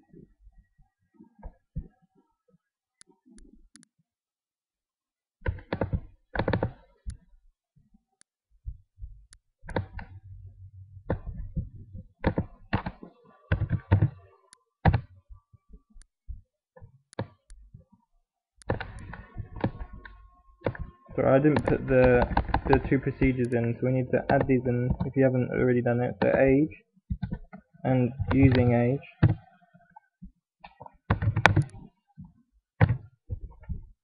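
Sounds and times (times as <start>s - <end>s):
keyboard and mouse clicks: 5.4s - 7.2s, 9.3s - 10.2s, 11.1s - 15.1s, 17.1s - 17.7s, 18.6s - 20.9s, 21.5s - 25.1s, 26.2s - 26.4s, 28.2s - 29.4s, 30.7s - 31.9s.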